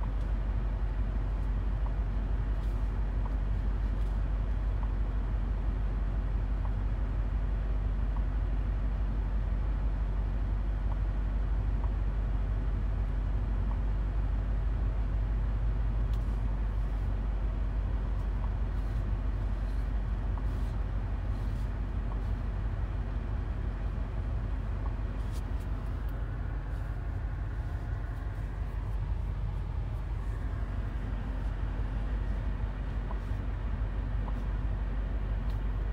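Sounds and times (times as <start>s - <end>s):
car engine and road noise: 0.0s - 35.9s.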